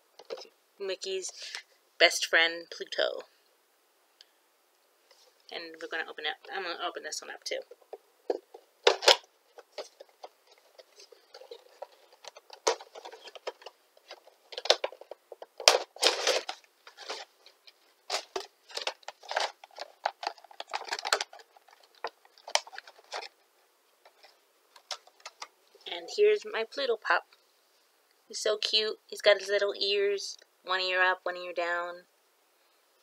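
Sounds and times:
packaging rustling and crinkling: 7.6s - 23.4s, 24.0s - 25.5s.

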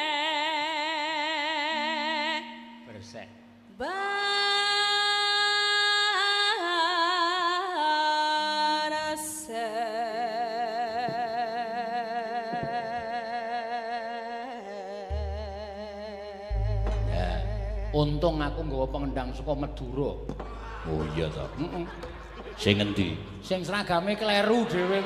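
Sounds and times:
woman singing with vibrato: 0.0s - 2.8s, 3.6s - 18.0s.

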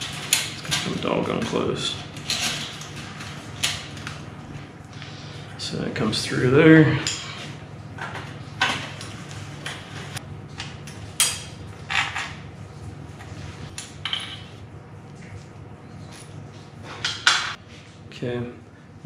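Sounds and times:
metal parts clinking and rattling: 0.0s - 4.1s
low steady hum: 0.0s - 19.0s.

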